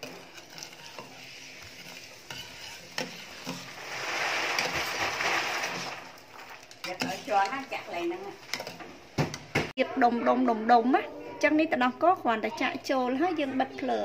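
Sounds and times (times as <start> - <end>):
ladle stirring liquid: 0.0 - 9.4.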